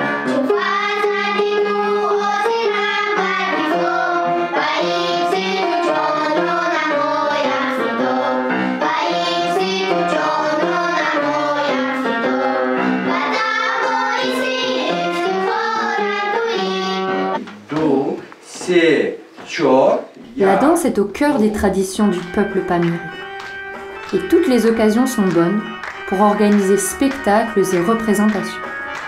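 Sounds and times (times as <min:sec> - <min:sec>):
upright piano: 0:00.0 - 0:17.9, 0:20.3 - 0:29.0
girls singing together: 0:00.2 - 0:17.4.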